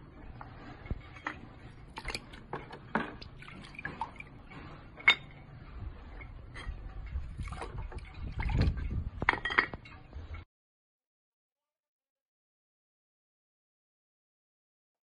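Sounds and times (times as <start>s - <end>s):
water dripping into a bucket: 3.2s - 4.4s.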